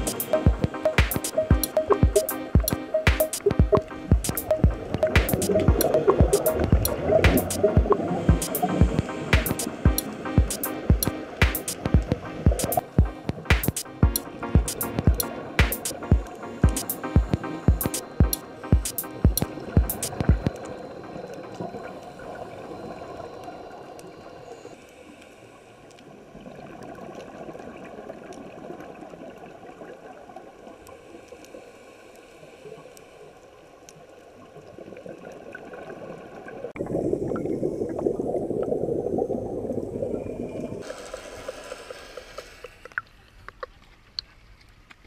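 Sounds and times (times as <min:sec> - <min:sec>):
underwater regulator bubbles gurgling: 0:00.0 - 0:24.5, 0:34.9 - 0:43.1
rush of exhaled bubbles: 0:35.4 - 0:43.0.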